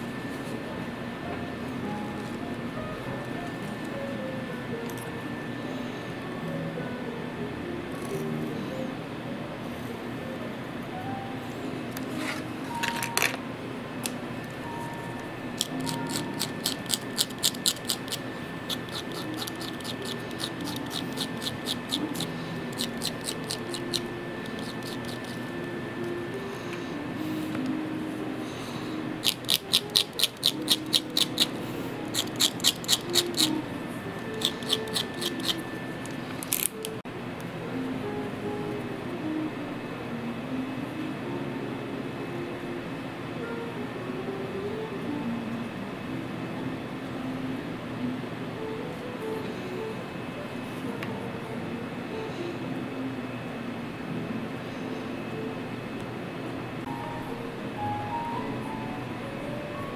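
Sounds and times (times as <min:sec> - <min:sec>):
soft background music: 0:00.0 - 0:59.9
utility knife cutting leather: 0:15.8 - 0:25.4, 0:32.1 - 0:33.5, 0:34.4 - 0:35.6.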